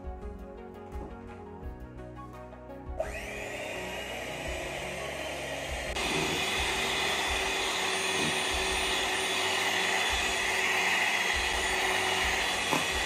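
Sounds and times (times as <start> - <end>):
electric hand mixer whipping cream: 3.0 - 13.0.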